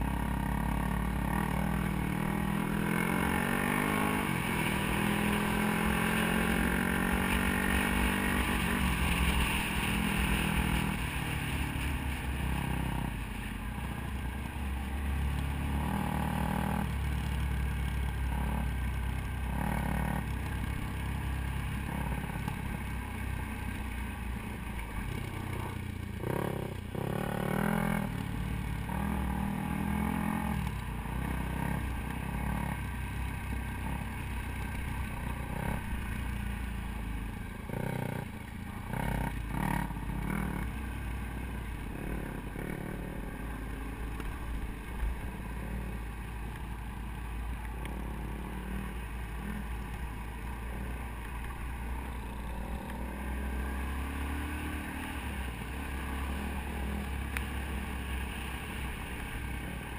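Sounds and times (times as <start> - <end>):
dirt bike engine revving: 0.2 - 11.0, 15.5 - 16.9, 25.2 - 28.1, 28.8 - 32.8.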